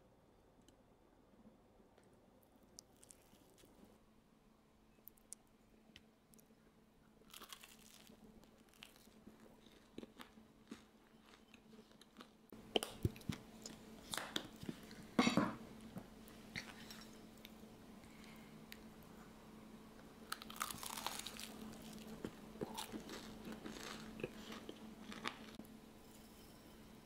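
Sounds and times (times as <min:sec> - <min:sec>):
faint steady hum: 0:00.0 - 0:27.0
person chewing crunchy food: 0:02.8 - 0:03.8, 0:07.3 - 0:15.2, 0:20.3 - 0:25.6.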